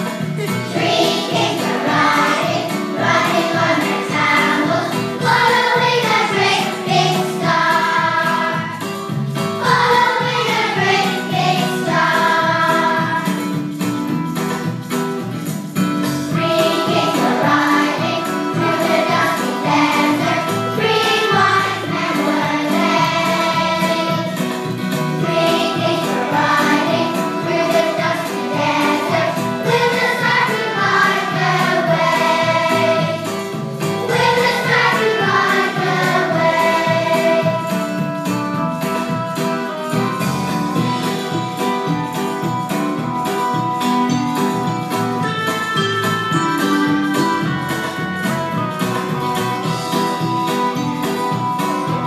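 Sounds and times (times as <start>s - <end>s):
children's choir singing: 0.0s - 13.7s, 16.3s - 38.1s
instrumental accompaniment: 0.0s - 52.0s.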